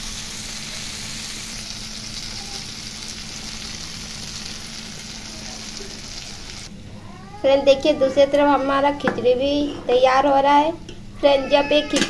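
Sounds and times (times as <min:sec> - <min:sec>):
vegetables sizzling in oil: 0:00.0 - 0:06.7.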